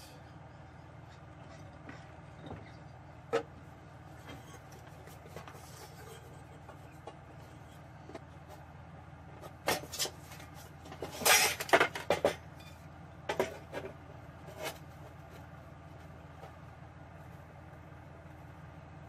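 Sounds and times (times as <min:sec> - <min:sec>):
sheet metal clanking and scraping: 0:01.4 - 0:08.2, 0:09.7 - 0:13.9.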